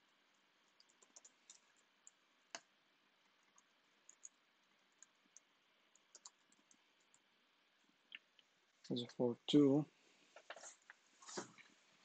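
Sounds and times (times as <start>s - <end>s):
computer keyboard typing clicks: 0.7s - 2.7s, 3.5s - 7.2s.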